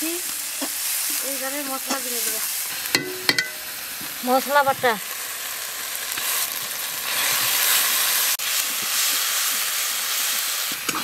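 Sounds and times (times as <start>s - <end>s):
spice paste sizzling in oil: 0.0s - 11.0s
metal spatula stirring: 1.6s - 3.7s.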